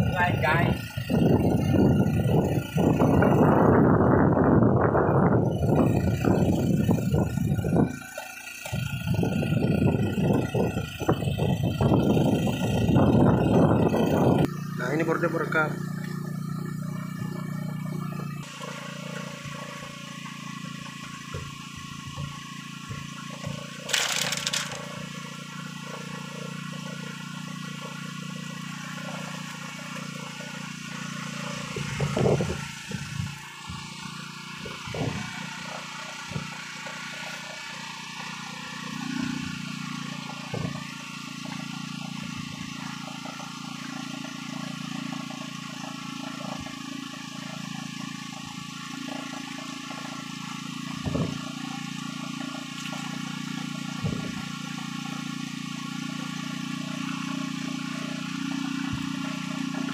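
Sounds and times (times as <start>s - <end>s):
boat motor humming: 0.0s - 59.9s
knocks and scrapes on wooden deck: 20.9s - 24.9s.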